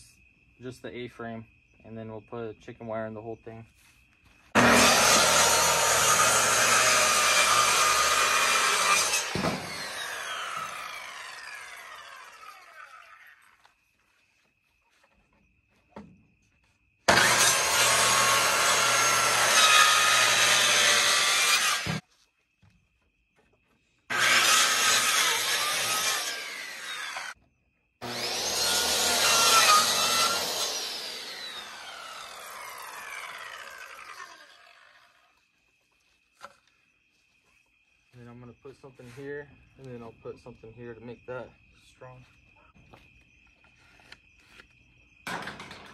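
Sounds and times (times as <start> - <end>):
circular saw cutting wood: 4.6 - 13.7, 17.1 - 22.0, 24.1 - 27.4, 28.0 - 35.5.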